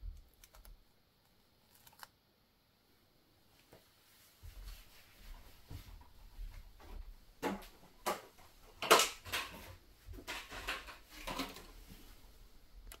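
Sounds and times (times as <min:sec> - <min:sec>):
soft knocks and rustles: 0:03.6 - 0:12.3.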